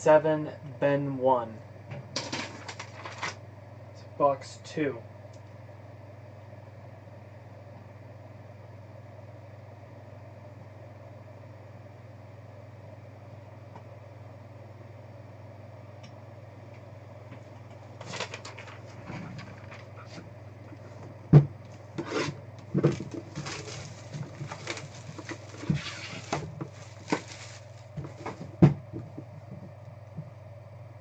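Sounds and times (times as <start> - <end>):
steady low hum: 0.0 - 31.0
box knocking on table: 28.0 - 29.7.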